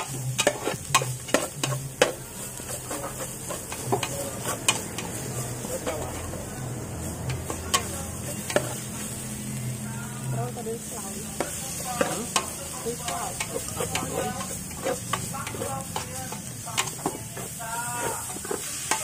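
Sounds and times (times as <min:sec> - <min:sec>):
metal ladle scraping a pot: 0:00.0 - 0:01.8, 0:02.5 - 0:06.3, 0:13.1 - 0:19.0
steady sizzle: 0:00.0 - 0:19.0.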